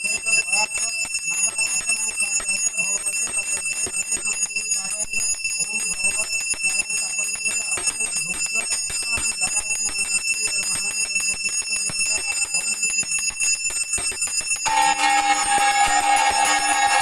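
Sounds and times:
bell rung rapidly: 0.0 - 17.0
steady tone: 14.7 - 17.0.

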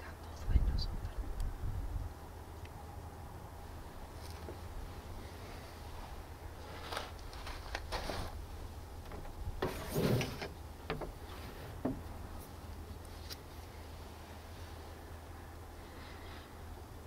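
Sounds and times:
light scrapes: 6.6 - 8.4, 9.6 - 10.6.

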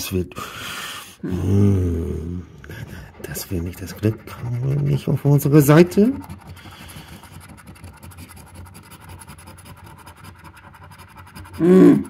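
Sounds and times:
coin scratching a card: 2.8 - 12.0.

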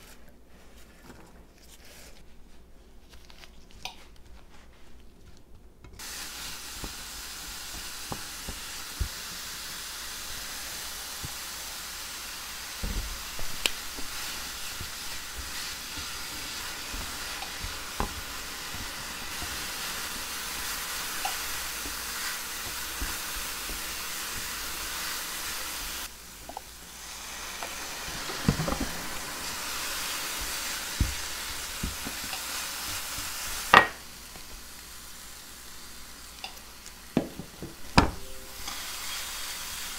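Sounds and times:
apples sizzling in a frying pan: 6.0 - 39.9
spatula tapping and scraping pan: 12.8 - 25.9.

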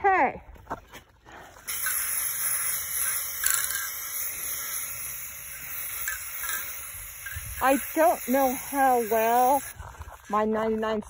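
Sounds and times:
spray paint can hissing: 1.7 - 10.2.

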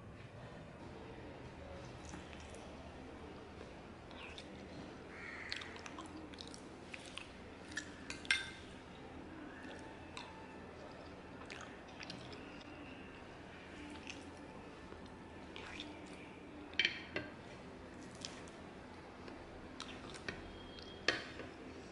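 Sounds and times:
person chewing: 5.4 - 8.0, 13.8 - 16.2.

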